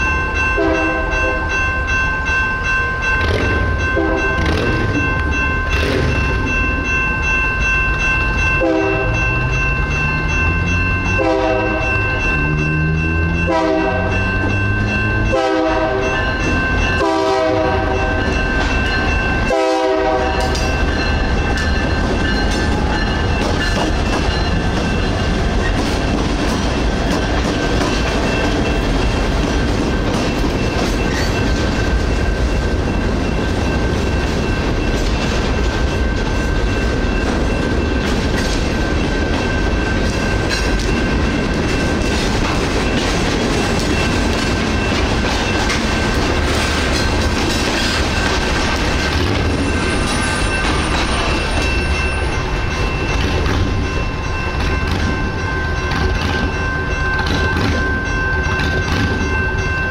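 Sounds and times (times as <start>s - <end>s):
crossing signal bell ringing: 0.0s - 59.9s
train cars rumbling and clacking: 0.0s - 59.9s
locomotive horn blasts: 0.6s - 1.4s, 4.0s - 4.7s, 8.6s - 9.2s, 11.2s - 12.0s, 13.5s - 14.3s, 15.3s - 16.2s, 17.0s - 18.3s, 19.5s - 20.6s.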